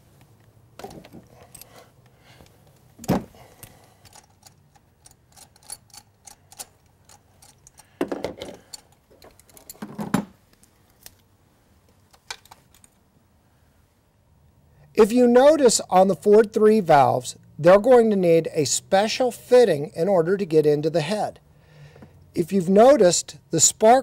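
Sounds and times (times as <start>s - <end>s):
metal tools clinking: 3.9s - 9.9s.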